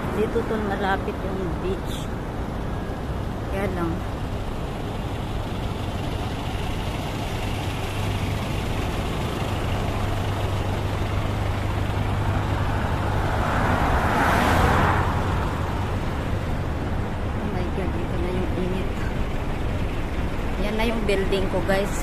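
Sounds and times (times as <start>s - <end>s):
road traffic hum: 0.0s - 22.0s
vehicle passing close: 6.5s - 22.0s.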